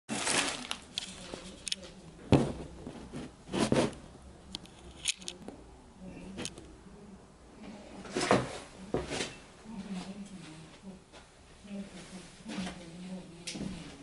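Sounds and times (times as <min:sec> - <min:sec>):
rustling: 0:00.1 - 0:05.5.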